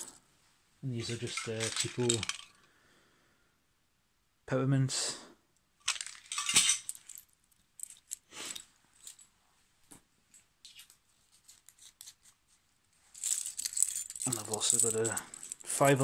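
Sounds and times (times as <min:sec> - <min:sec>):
mints rattling in plastic box: 0:01.0 - 0:02.5, 0:05.8 - 0:08.2, 0:13.2 - 0:16.0.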